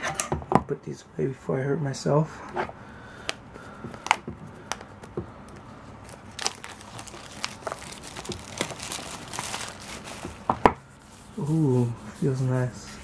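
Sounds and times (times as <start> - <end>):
plastic shrink wrap crinkling: 5.5 - 10.7.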